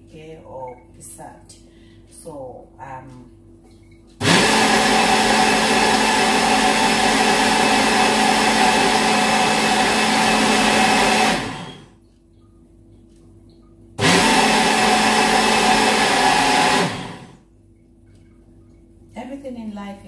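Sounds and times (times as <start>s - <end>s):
blender running: 4.2s - 12.0s, 14.0s - 17.4s.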